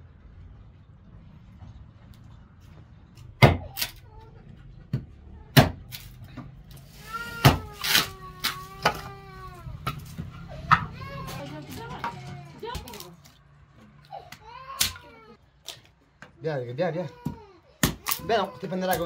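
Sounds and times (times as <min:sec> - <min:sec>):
hatchet chopping wood: 0:03.4 - 0:03.9, 0:04.9 - 0:05.9, 0:17.2 - 0:18.3.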